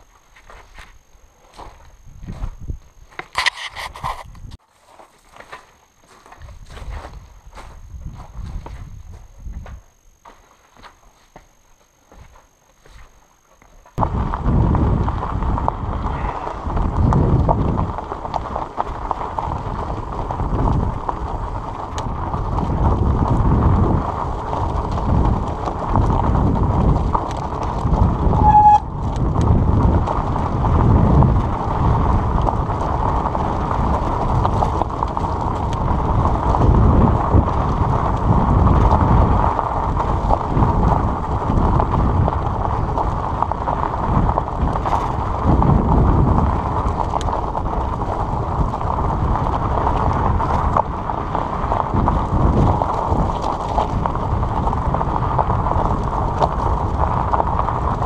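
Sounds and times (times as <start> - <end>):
bike tyres rumbling over gravel: 0.0 - 58.0
wind buffeting microphone: 1.6 - 4.6, 6.4 - 9.9, 14.0 - 58.0
short high note: 28.4 - 28.9.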